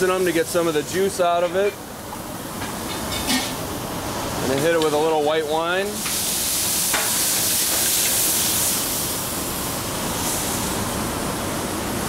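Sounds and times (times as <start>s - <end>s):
wine sizzling in hot pan: 5.8s - 10.8s.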